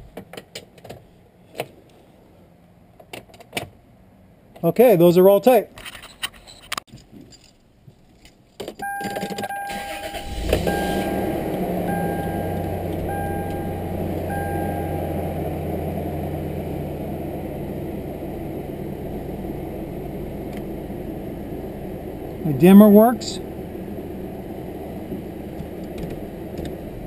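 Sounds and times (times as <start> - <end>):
warning chime beeping: 8.8 - 15.8
car engine cranking and idling: 8.8 - 27.0.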